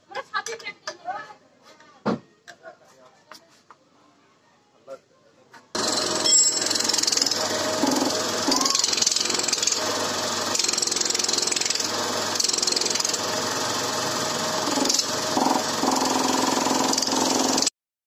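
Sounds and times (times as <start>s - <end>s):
air compressor running: 5.8s - 17.7s.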